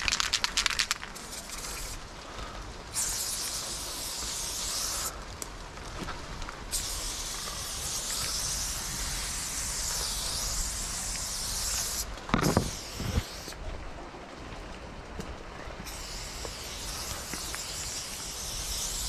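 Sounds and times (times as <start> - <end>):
spray paint can hissing: 0.0 - 2.0, 2.9 - 5.1, 6.7 - 13.6, 15.9 - 19.0.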